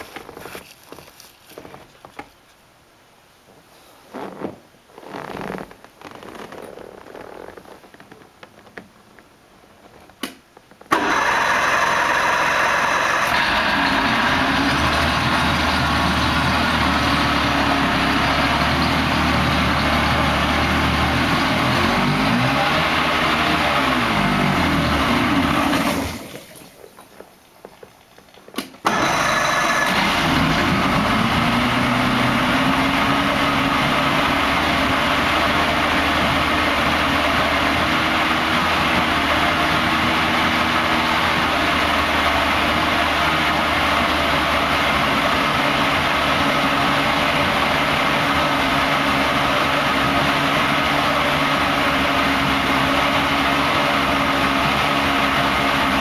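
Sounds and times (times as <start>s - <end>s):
outboard engine idling: 10.9s - 21.3s.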